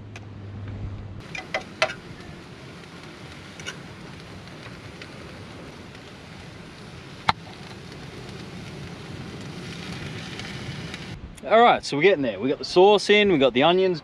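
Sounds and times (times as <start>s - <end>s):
onions sizzling in a pan: 1.2s - 11.2s.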